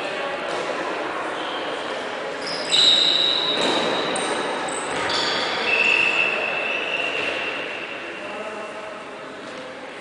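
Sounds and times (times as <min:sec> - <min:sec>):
shoes squeaking on court floor: 0:02.4 - 0:07.9.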